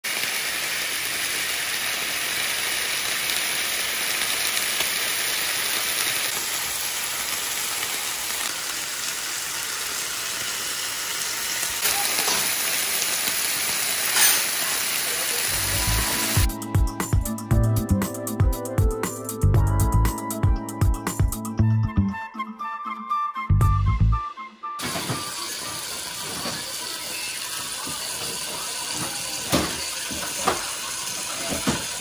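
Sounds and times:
steaks sizzling in a pan: 0:00.0 - 0:17.2, 0:24.8 - 0:32.0.

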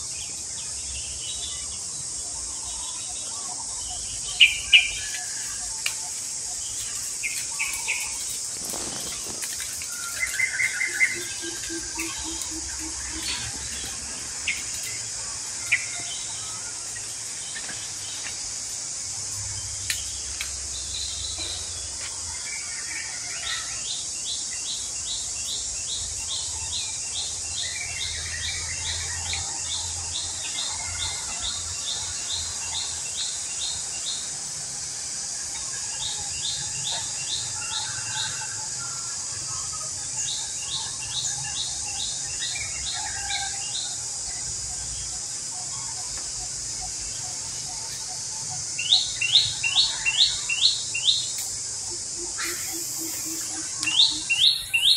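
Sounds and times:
high insect buzz: 0:00.0 - 0:54.9
bird chirping: 0:00.2 - 0:22.4, 0:39.3 - 0:54.9.

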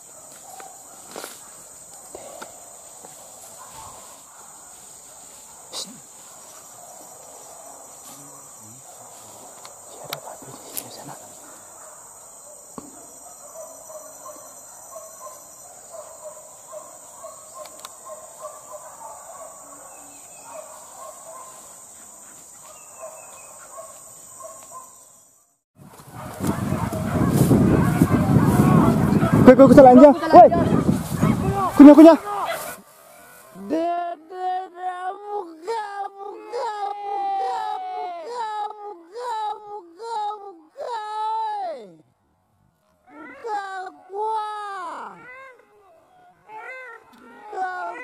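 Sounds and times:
insects buzzing: 0:00.0 - 0:41.9
faint twig-like clicks: 0:17.6 - 0:18.0.

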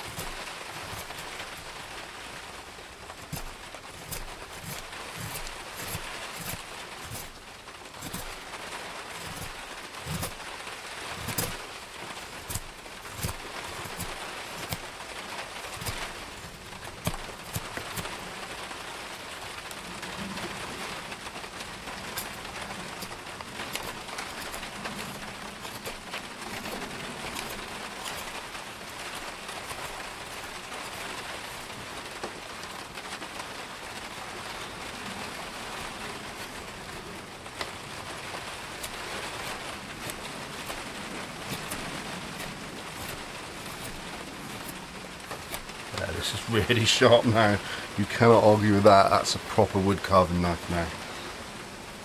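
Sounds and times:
knife shaving wood: 0:00.0 - 0:51.4
heavy rain: 0:00.0 - 0:52.0.

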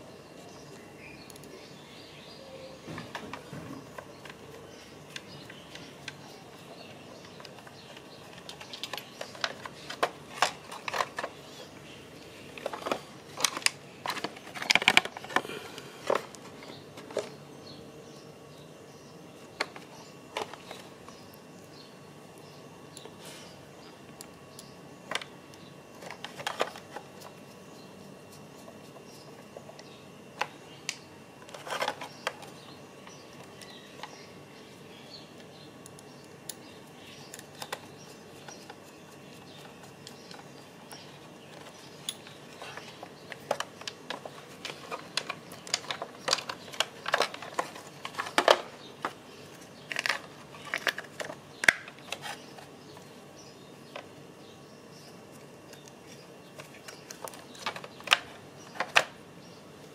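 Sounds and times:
hard plastic parts clicking: 0:41.5 - 0:49.2.

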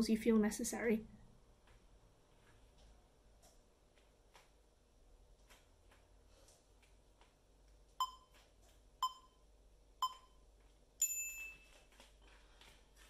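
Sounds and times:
long high timer beep: 0:08.0 - 0:08.3, 0:09.0 - 0:09.4
short timer beeps: 0:08.0 - 0:08.4, 0:09.0 - 0:09.4, 0:10.0 - 0:10.4.

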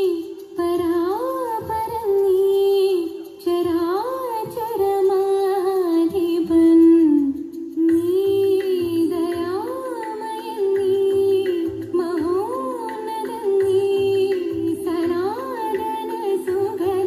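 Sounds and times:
person singing slow melody: 0:06.8 - 0:17.0.

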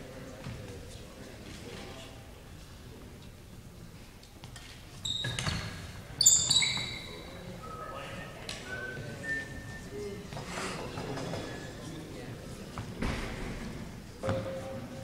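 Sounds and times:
shoes squeaking on gym floor: 0:04.8 - 0:07.5.

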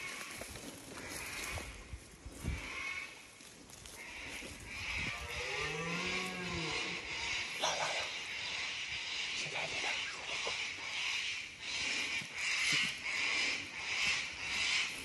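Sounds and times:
footsteps through grass: 0:00.0 - 0:07.1, 0:11.6 - 0:15.0
deer stag roaring: 0:04.9 - 0:07.5.

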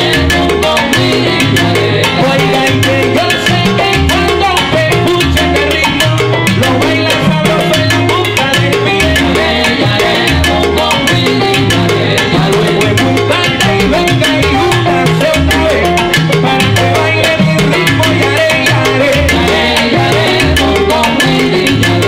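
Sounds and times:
bass line: 0:00.0 - 0:22.0
salsa big band playing: 0:00.0 - 0:22.0.

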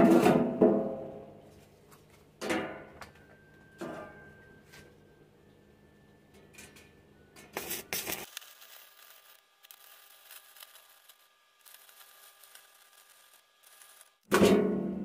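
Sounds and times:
welding arc crackling: 0:07.6 - 0:14.3.

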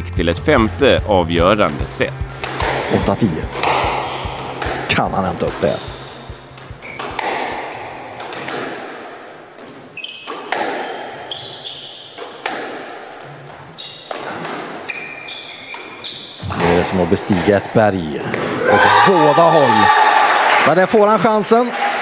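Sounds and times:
squash ball hitting rackets and walls: 0:02.1 - 0:19.6
shoe squeaks on court floor: 0:02.4 - 0:08.8, 0:09.6 - 0:12.8, 0:13.4 - 0:17.4.

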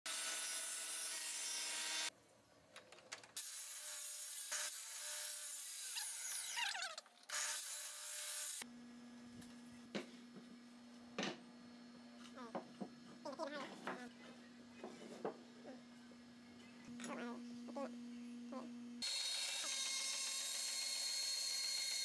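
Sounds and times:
table saw cutting wood: 0:00.1 - 0:02.1, 0:03.4 - 0:08.6, 0:19.0 - 0:22.0
steady low hum: 0:08.7 - 0:19.0.

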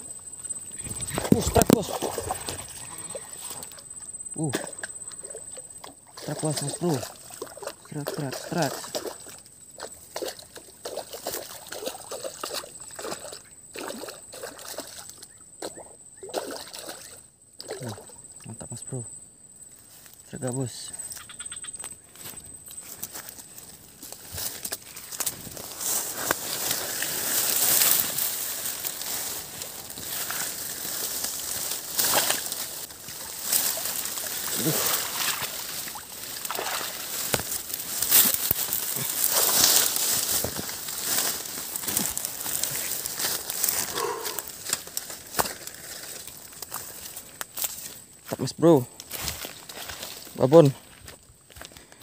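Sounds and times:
leaves rustling against camera: 0:00.0 - 0:04.5, 0:19.8 - 0:52.0
water trickling and sloshing: 0:04.8 - 0:18.2, 0:24.6 - 0:43.8.

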